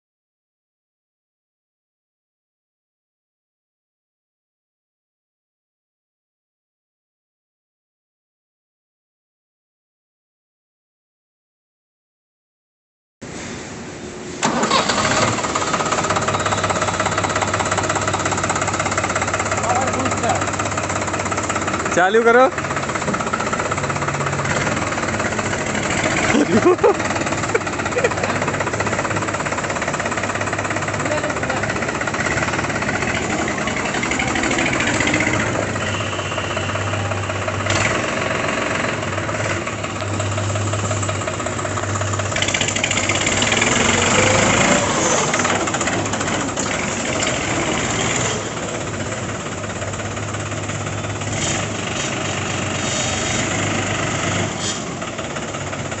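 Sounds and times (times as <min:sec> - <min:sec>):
tractor diesel engine clattering: 0:14.4 - 0:56.0.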